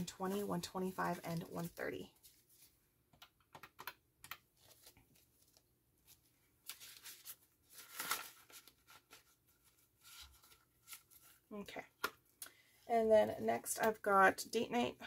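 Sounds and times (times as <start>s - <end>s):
banknotes rustling and crinkling: 0.1s - 2.8s, 3.8s - 12.3s
plastic envelope rustling: 4.5s - 11.5s.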